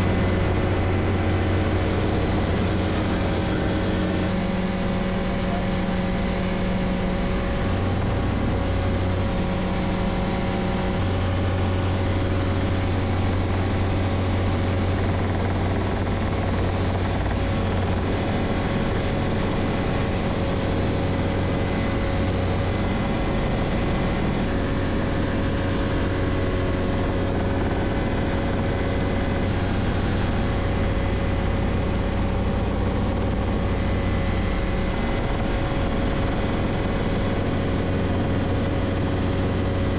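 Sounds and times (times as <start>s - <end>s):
helicopter engine and rotor running: 0.0s - 39.9s.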